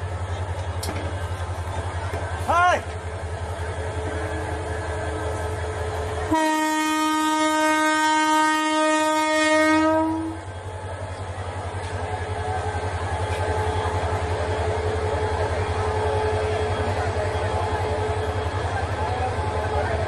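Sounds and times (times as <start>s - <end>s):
train rumbling past: 0.0s - 20.0s
train horn blast: 6.2s - 10.5s.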